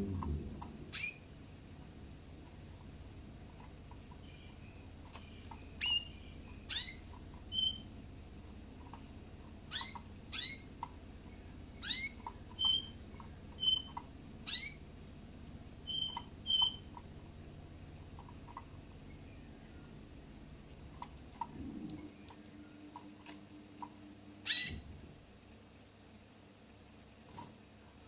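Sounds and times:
finch calling: 0.8 - 1.3, 3.5 - 7.9, 8.8 - 14.9, 15.8 - 17.2, 24.4 - 24.9.

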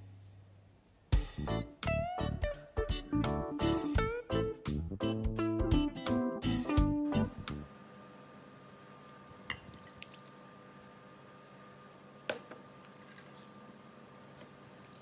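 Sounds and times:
oil pouring into glass bowl: 9.2 - 11.0.

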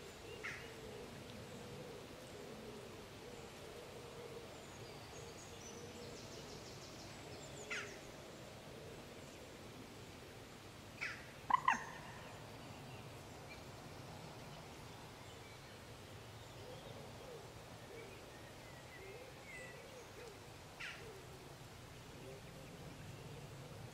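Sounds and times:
fainter lower calls: 11.1 - 12.2.

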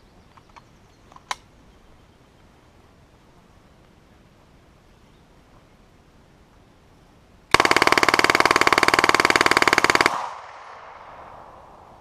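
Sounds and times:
submachine gun full-auto burst: 7.5 - 10.4
gunfire echo: 7.5 - 12.0.

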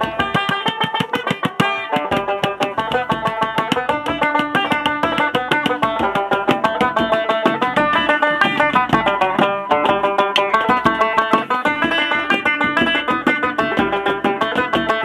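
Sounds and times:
banjo plucking a fast tune: 0.0 - 15.0
hand drum strokes: 0.0 - 15.0.

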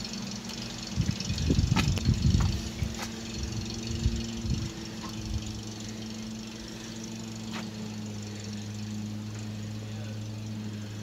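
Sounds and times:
truck engine running low: 0.0 - 11.0
low knocks and rumbles: 0.9 - 5.6.

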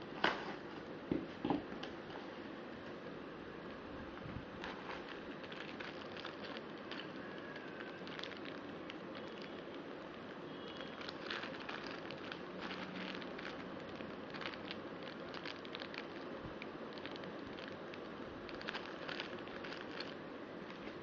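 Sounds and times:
packaging crinkling: 4.6 - 21.0.

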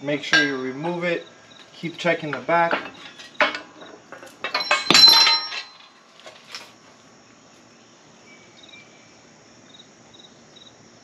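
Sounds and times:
faint insect chirping: 0.0 - 11.0
metallic clank of steel tools: 0.2 - 1.0, 2.3 - 6.6.

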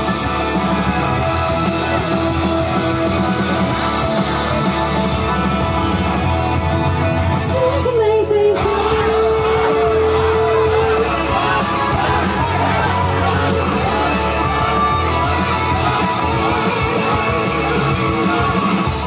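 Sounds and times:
pop-rock song through a pa: 0.0 - 19.0
girls singing into microphones: 7.4 - 13.0.

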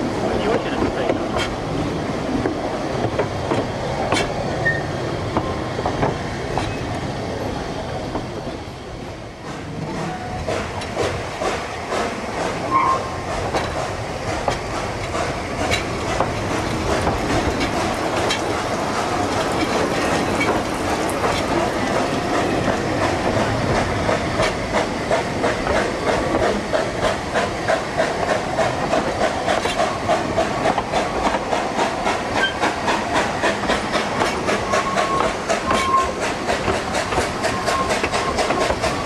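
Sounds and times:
train carriage rumbling: 0.0 - 39.0
wheels clicking over rail joints: 10.5 - 39.0.

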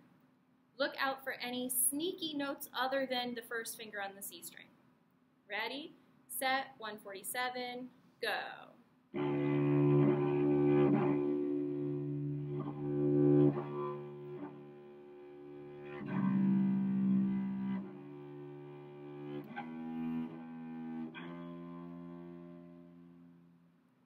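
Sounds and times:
cello long bowed notes: 9.2 - 23.7.

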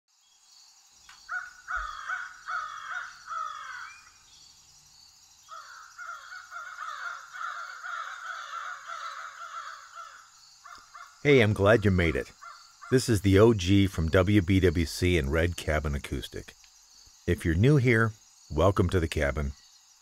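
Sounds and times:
crows cawing: 1.3 - 4.2, 5.5 - 11.3, 12.2 - 13.0.

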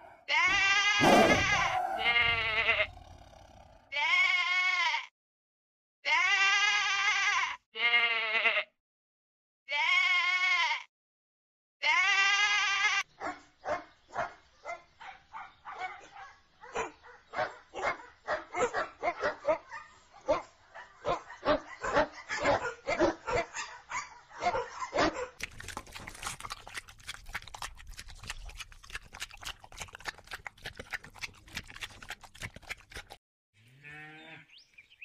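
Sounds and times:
sheep bleating: 0.0 - 5.1, 6.0 - 8.7, 9.7 - 10.9, 11.8 - 13.0, 33.6 - 34.5
dogs barking and yipping: 1.4 - 2.4, 13.2 - 33.2.

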